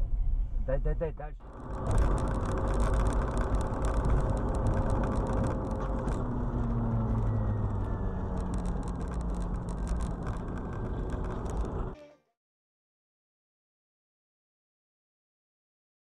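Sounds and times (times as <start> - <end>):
car interior road and engine noise: 0.0 - 12.0.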